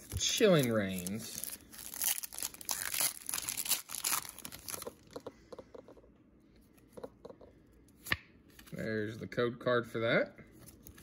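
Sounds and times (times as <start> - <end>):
foil wrapper tearing and crinkling: 0.0 - 5.0.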